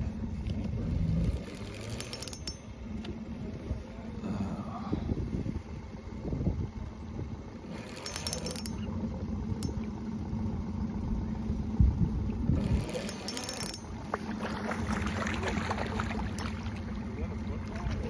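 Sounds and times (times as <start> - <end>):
small boat motor running: 0.0 - 18.0
metal clinking in boat: 0.4 - 3.2, 7.6 - 10.3, 12.6 - 18.0.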